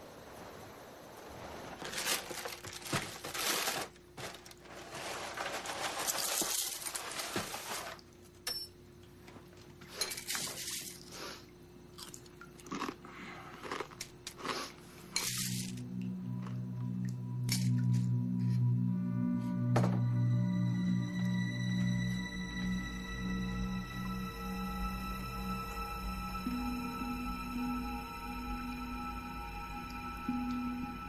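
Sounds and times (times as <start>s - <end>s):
faint steady hum: 0.0s - 31.0s
crunchy food being chewed: 12.0s - 14.9s.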